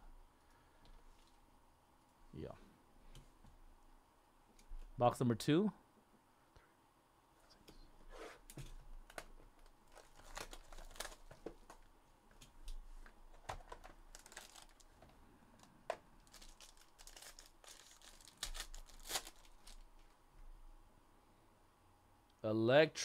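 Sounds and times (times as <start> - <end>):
packaging crinkling and rustling: 9.0 - 11.9, 13.3 - 20.2
foil pack tearing: 14.1 - 14.8, 16.2 - 19.8.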